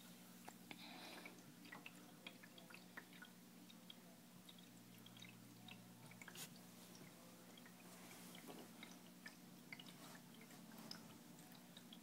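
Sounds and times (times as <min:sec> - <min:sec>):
aquarium hum: 0:00.0 - 0:12.0
tiny water drips: 0:00.0 - 0:12.0.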